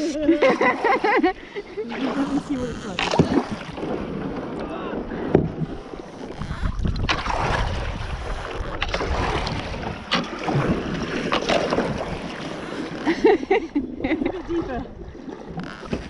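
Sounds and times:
paddle splashing in water: 0.5s - 16.0s
wind rumble on microphone: 5.1s - 12.3s.

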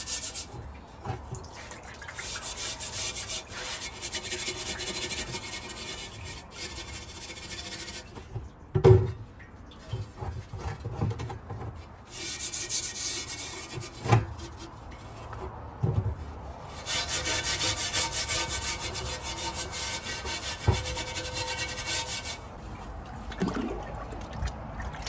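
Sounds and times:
metal pad scrubbing cast iron: 0.0s - 0.7s, 2.1s - 8.3s, 12.1s - 15.3s, 16.7s - 22.6s.

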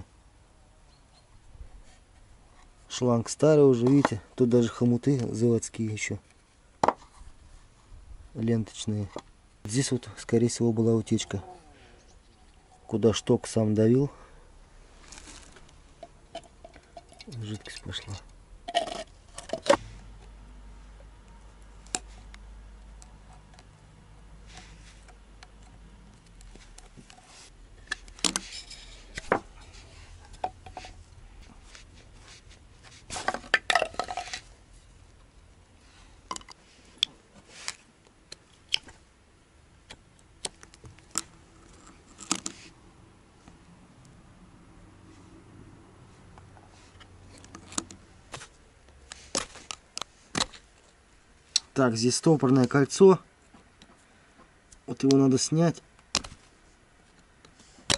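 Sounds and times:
metal parts clinking and clattering: 28.2s - 29.7s.

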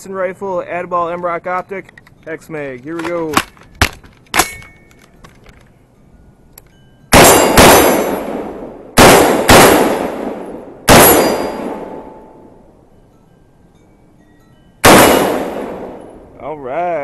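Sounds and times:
steel target ringing: 4.4s - 4.9s, 7.1s - 9.4s, 10.0s - 13.1s, 14.7s - 16.4s
rifle shots with echo: 7.1s - 12.5s, 14.8s - 16.2s.

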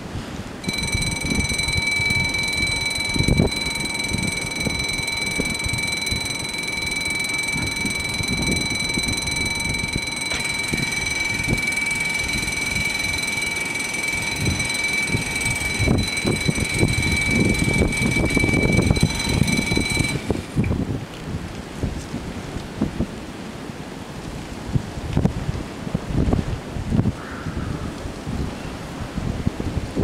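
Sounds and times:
wind rumble on microphone: 0.0s - 6.3s, 14.4s - 30.0s
level-crossing warning bells ringing: 0.6s - 20.6s.

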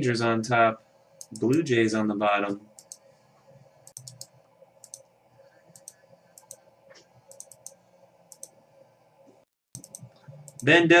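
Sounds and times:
faint steady hum: 0.0s - 11.0s
mouse buttons clicking: 3.9s - 5.1s, 7.3s - 8.6s, 9.8s - 10.7s.

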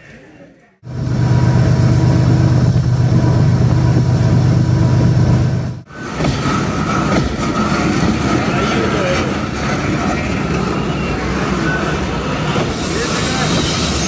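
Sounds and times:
locomotive engine humming: 0.8s - 14.0s
train wheels rumbling on rails: 0.8s - 14.0s
steady high wheel squeal: 5.9s - 14.0s.

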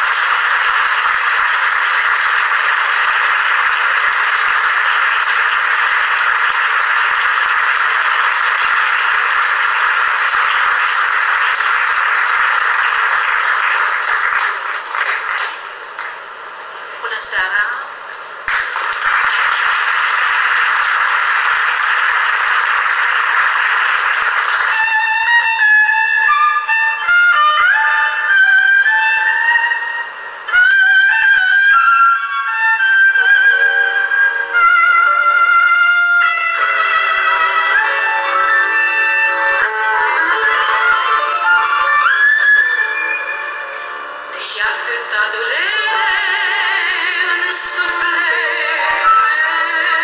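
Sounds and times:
audience applause: 0.0s - 16.3s, 18.4s - 26.4s.

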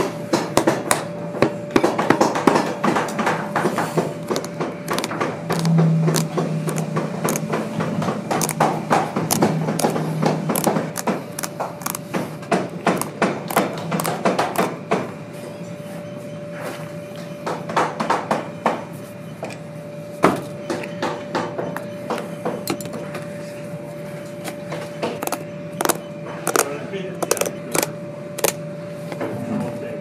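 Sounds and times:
steady hum: 0.0s - 30.0s
hand tool clicking through stitching: 4.2s - 7.6s, 8.3s - 12.1s, 12.9s - 14.7s, 25.2s - 28.6s.

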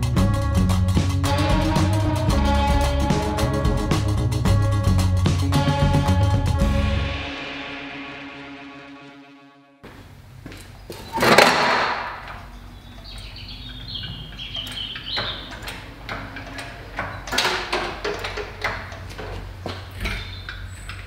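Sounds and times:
engine crane clanking: 10.6s - 21.0s
metal squeaks from lifting chain: 12.5s - 18.2s, 19.9s - 21.0s.

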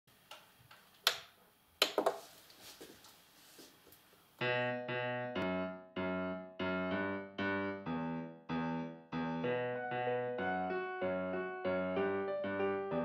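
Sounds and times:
piano chords: 4.4s - 13.0s.

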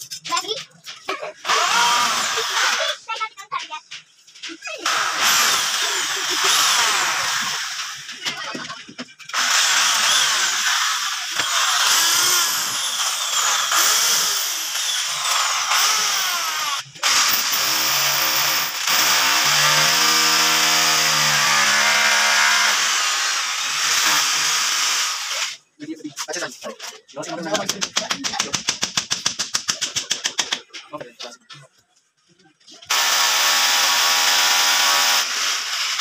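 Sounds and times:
electric drill boring: 1.4s - 2.9s, 4.8s - 8.2s, 9.3s - 25.6s, 32.9s - 36.0s.

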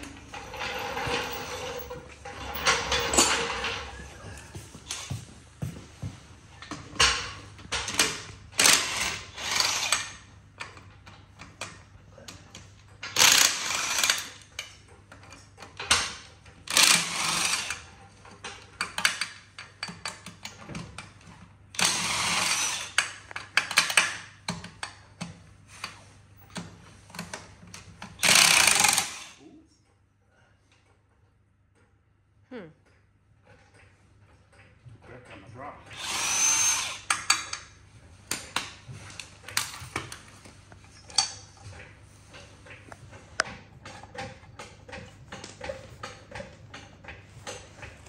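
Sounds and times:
impact wrench hammering: 7.0s - 10.2s, 28.2s - 29.4s.

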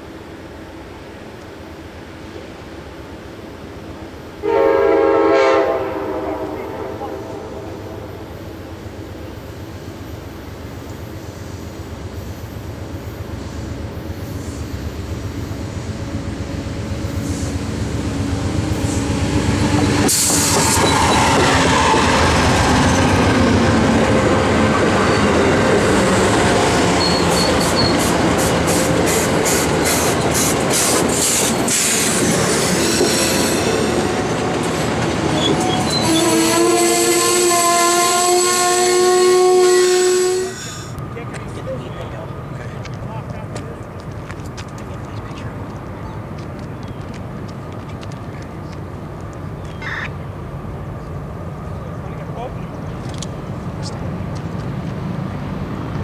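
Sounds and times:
train rumble: 0.0s - 56.0s
ringing wheel squeal: 27.0s - 28.0s, 35.4s - 36.2s.

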